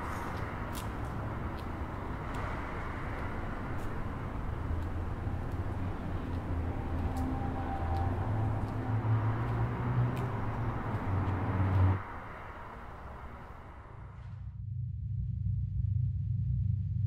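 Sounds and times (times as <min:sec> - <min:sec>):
footsteps on paved path: 0:00.0 - 0:12.1
distant traffic: 0:00.0 - 0:14.4
low outdoor rumble: 0:00.0 - 0:17.0.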